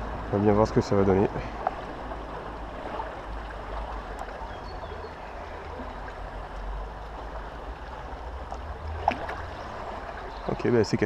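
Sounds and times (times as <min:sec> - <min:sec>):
river water running over stones: 0:00.0 - 0:11.0.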